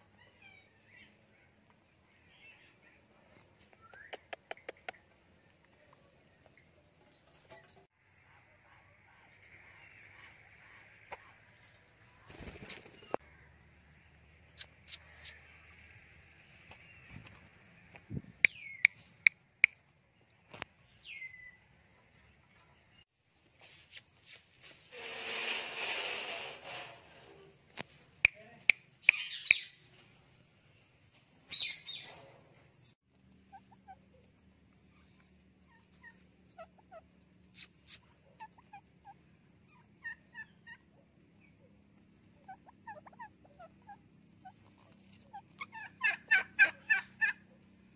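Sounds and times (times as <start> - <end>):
soft chirps: 20.8 - 25.3, 26.1 - 46.1.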